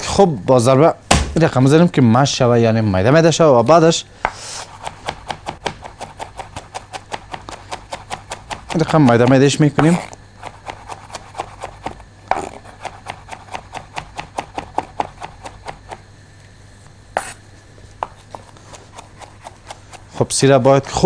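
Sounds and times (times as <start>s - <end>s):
knife chopping on wooden board: 4.2s - 16.0s, 17.2s - 17.4s, 18.0s - 20.1s.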